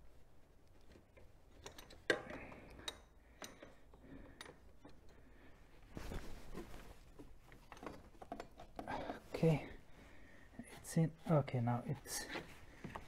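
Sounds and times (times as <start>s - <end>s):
clothing rustling: 3.8s - 13.0s.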